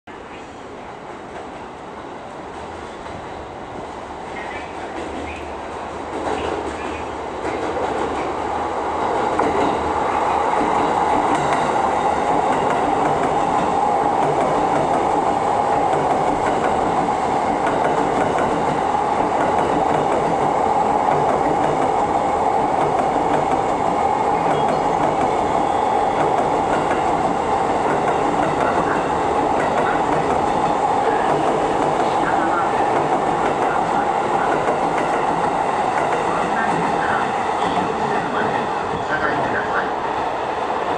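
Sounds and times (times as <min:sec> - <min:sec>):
electric train passing: 0:00.1 - 0:40.9.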